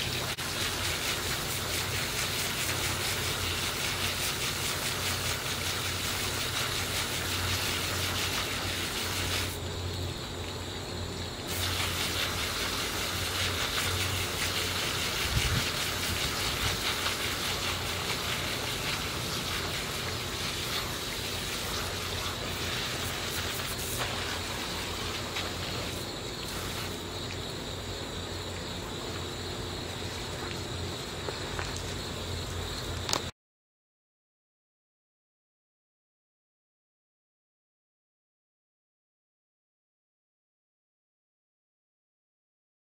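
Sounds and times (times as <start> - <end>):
hose water spray hissing: 0.0 - 33.3.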